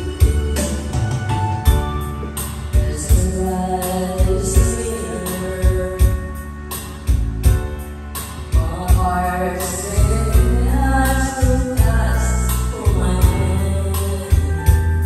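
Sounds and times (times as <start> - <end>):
backing track with bass beat: 0.0 - 15.0
girl singing karaoke: 0.0 - 15.0.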